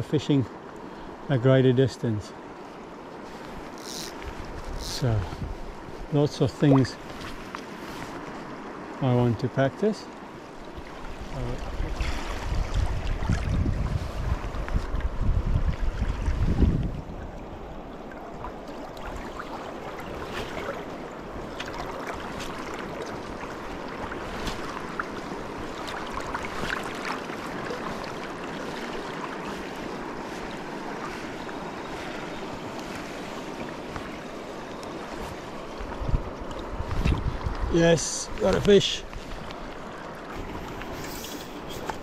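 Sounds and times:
water splashes: 2.6s - 42.0s
wind buffeting microphone: 4.2s - 6.1s, 11.2s - 17.8s, 35.8s - 39.5s
river rushing: 17.0s - 36.8s.

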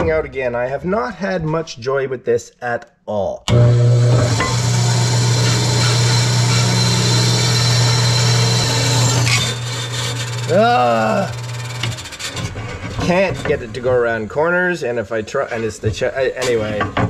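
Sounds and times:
bandsaw motor humming: 3.5s - 12.7s
saw blade cutting wood: 3.5s - 13.9s.

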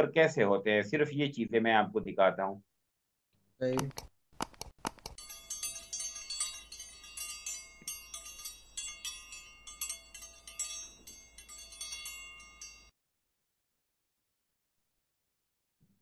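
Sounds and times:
chimes tinkling: 5.2s - 12.9s.

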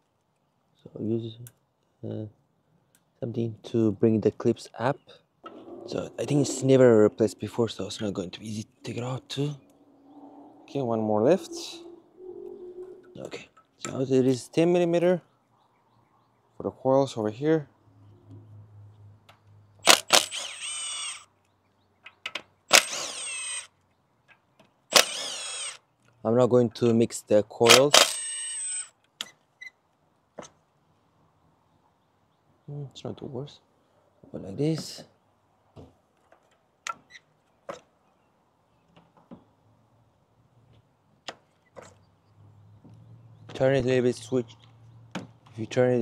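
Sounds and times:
sharp power tool click: 19.8s - 21.2s, 22.7s - 23.2s, 24.9s - 25.8s, 27.7s - 28.2s
power tool motor whine: 20.0s - 21.2s, 25.0s - 25.8s.

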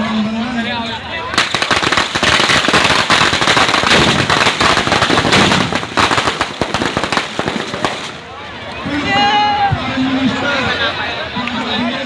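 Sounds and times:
firecrackers bangs and crackles: 1.3s - 8.4s.

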